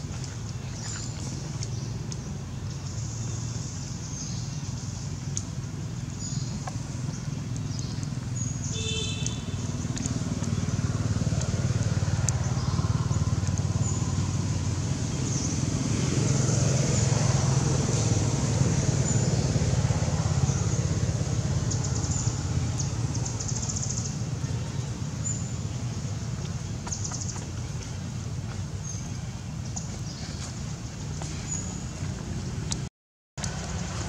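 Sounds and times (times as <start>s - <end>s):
low outdoor rumble: 0.0s - 34.0s.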